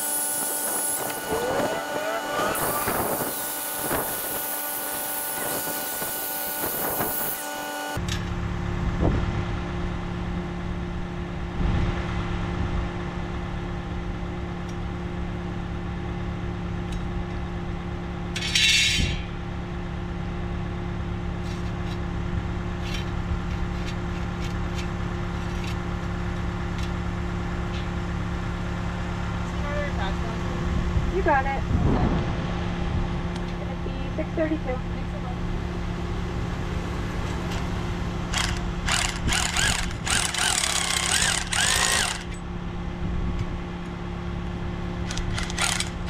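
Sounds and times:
power tool whining: 0.0s - 8.1s, 37.1s - 42.5s, 45.0s - 46.0s
diesel engine idling: 24.9s - 46.0s.

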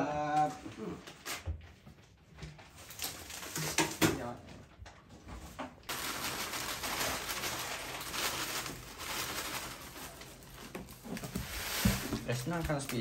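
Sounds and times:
plastic bag crinkling: 2.7s - 4.0s, 5.9s - 13.0s
cereal flakes pouring: 5.9s - 10.5s.

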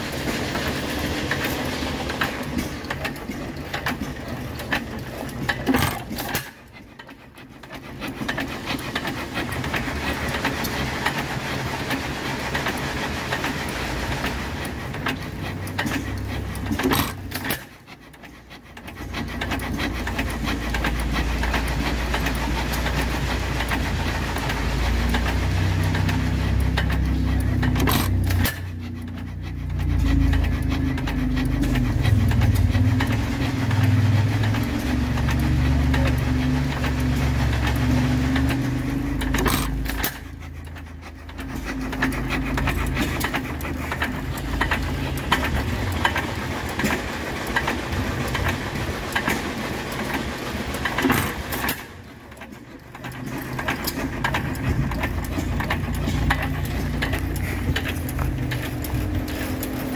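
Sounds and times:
old gas engines clattering: 0.0s - 59.9s
low engine rumble: 18.9s - 59.9s.

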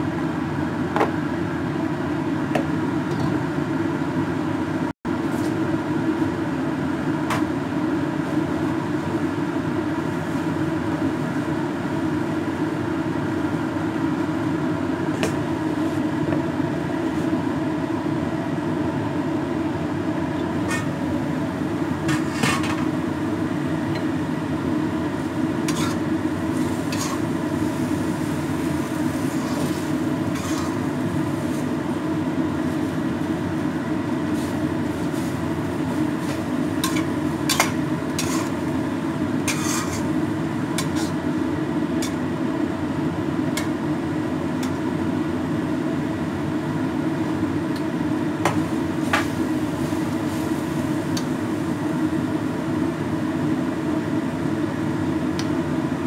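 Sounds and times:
low mechanical hum: 0.0s - 56.0s
metal spatula scraping a wok: 25.7s - 26.0s, 26.6s - 27.3s, 29.2s - 30.8s, 36.8s - 38.6s, 39.4s - 40.2s, 40.8s - 41.2s.

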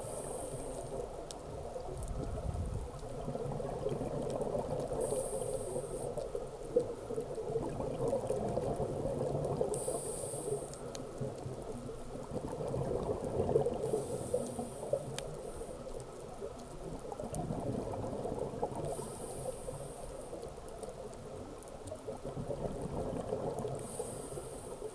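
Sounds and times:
regulator inhale hiss: 0.0s - 1.2s, 4.9s - 6.4s, 9.6s - 11.2s, 13.8s - 15.9s, 18.8s - 20.4s, 23.7s - 24.9s
bubbly gurgling of exhaled air: 1.8s - 6.0s, 6.8s - 10.2s, 11.2s - 15.2s, 16.8s - 19.9s, 21.0s - 24.9s.

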